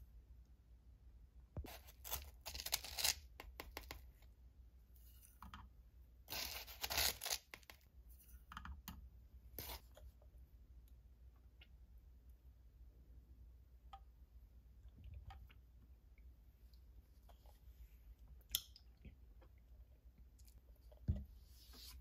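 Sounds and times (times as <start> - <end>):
plastic spoon scraping powder: 1.6 - 4.1, 6.3 - 7.9.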